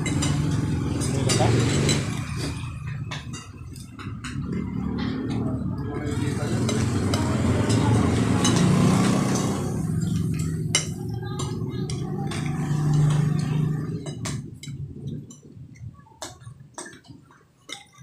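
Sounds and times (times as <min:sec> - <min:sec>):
forks clinking on plates: 0:00.0 - 0:05.4, 0:06.0 - 0:15.6, 0:16.2 - 0:18.0
low steady rumble: 0:09.6 - 0:16.6.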